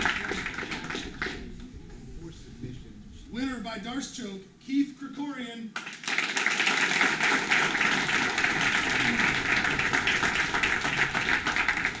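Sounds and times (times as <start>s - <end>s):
audience applauding: 0.0s - 1.5s, 5.8s - 12.0s.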